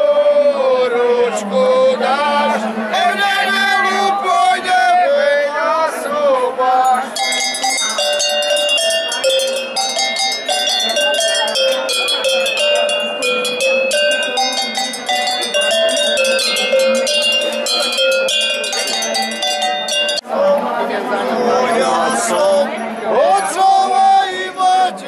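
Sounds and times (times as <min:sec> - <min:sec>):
cowbells played as melody: 0:06.8 - 0:20.2.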